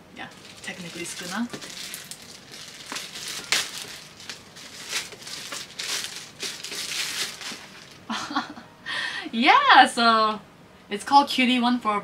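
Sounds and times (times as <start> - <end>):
plastic wrapping crinkling: 0.2 - 8.1.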